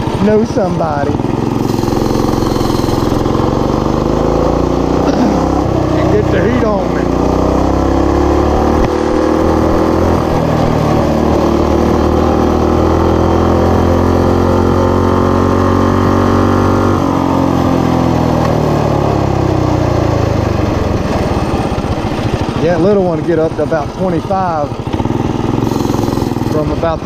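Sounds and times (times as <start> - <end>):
mini bike engine revving: 0.0 - 27.0.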